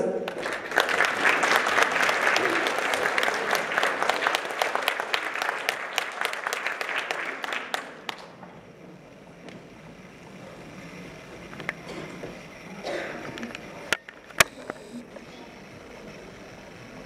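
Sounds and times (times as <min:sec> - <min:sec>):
stray claps: 0:00.2 - 0:08.6
audience applauding: 0:00.2 - 0:08.8.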